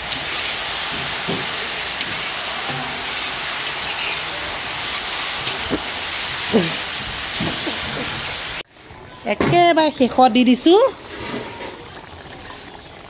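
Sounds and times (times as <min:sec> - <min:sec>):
vegetables sizzling in oil: 0:00.0 - 0:08.7.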